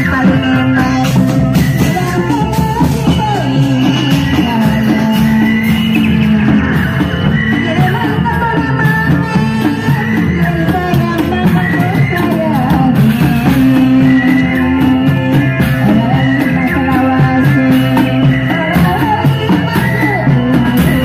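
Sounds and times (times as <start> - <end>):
drums beating: 0.0 - 21.0
wavering melody line: 0.0 - 21.0.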